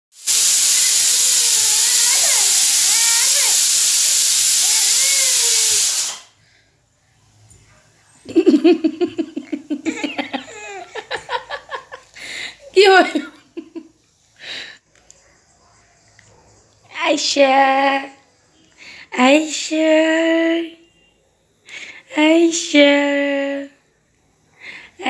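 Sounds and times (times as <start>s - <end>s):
loud steady hiss: 0.1s - 6.6s, 8.4s - 14.8s.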